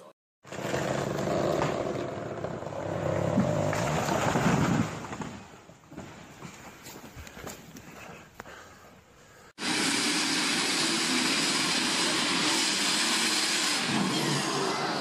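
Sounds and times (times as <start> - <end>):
tree falling and crashing: 3.2 - 5.8.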